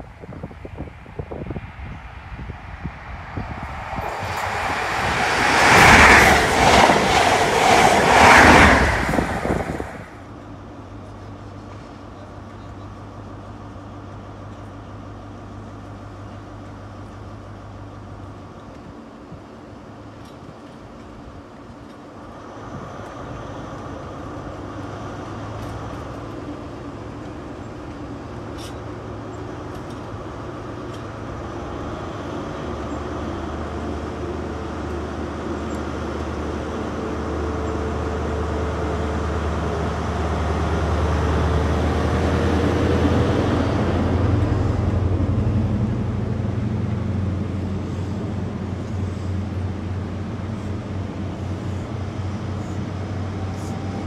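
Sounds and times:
diesel train engine: 0.0s - 54.0s
rising engine whine: 0.7s - 10.3s.

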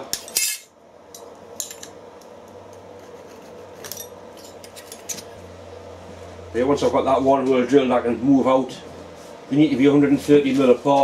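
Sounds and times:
steady low hum: 0.0s - 11.0s
metal tools clinking: 0.2s - 0.7s.

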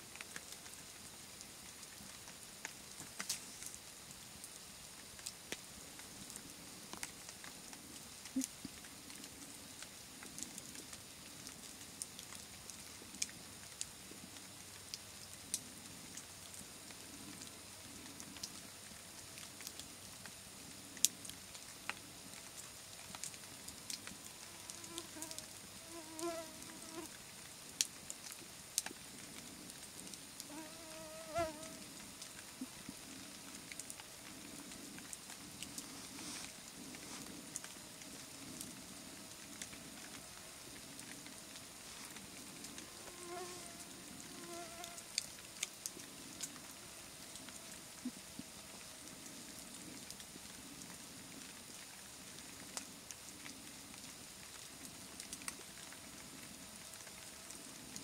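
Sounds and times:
campfire crackling: 0.0s - 58.0s
sharp pops from fire: 3.0s - 3.8s.

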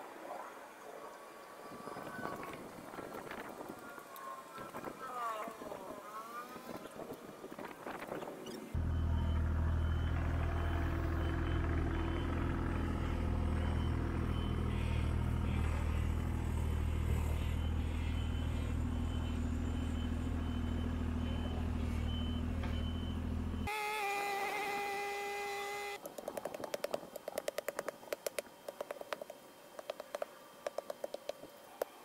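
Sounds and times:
diesel engine running: 8.8s - 23.7s.

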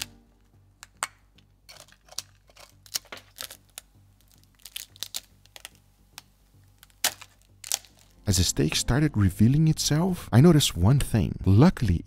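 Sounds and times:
brittle wax cracking: 0.0s - 8.3s.

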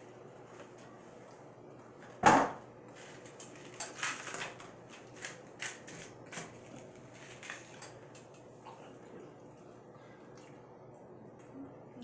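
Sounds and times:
plastic wrapper crinkling: 3.0s - 8.0s.

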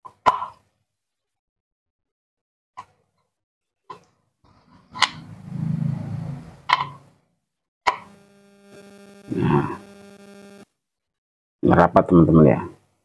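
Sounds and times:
low rubbing rumble: 4.7s - 7.1s
steady hum: 8.0s - 10.6s.

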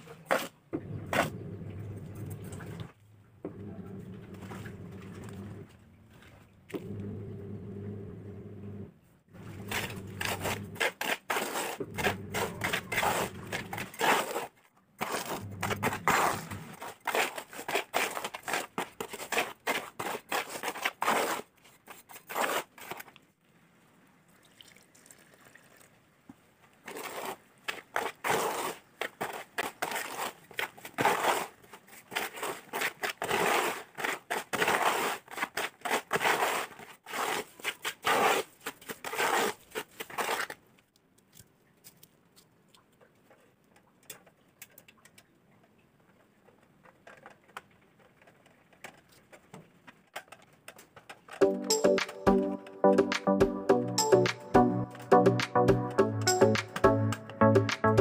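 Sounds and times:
trowel scraping cement in metal basin: 0.0s - 1.4s, 9.4s - 23.1s, 26.9s - 40.6s
low hum: 6.8s - 10.8s.

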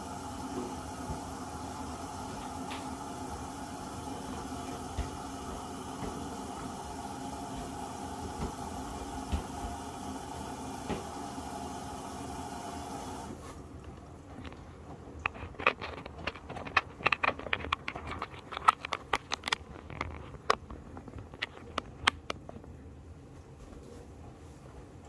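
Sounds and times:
water hissing through inlet valve: 0.0s - 13.6s
washing machine drum tumbling laundry: 0.0s - 15.2s.

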